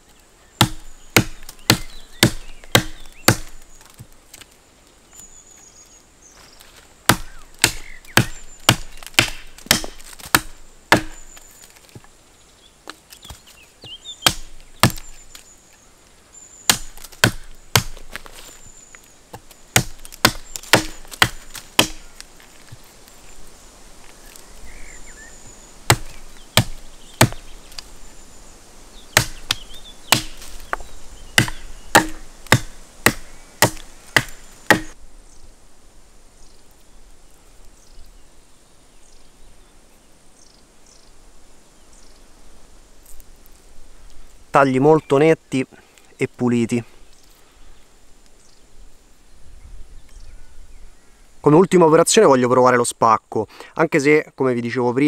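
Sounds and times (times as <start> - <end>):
hatchet chopping wood: 0.6 - 4.1, 7.1 - 11.4, 14.2 - 15.2, 16.7 - 18.3, 19.3 - 22.1, 25.9 - 27.5, 29.1 - 30.8, 31.4 - 35.0.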